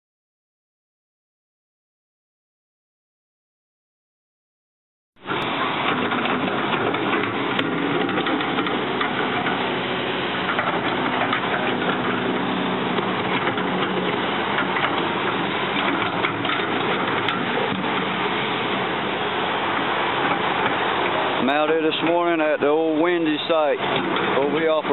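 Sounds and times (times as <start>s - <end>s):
excavator diesel engine running: 5.2s - 24.9s.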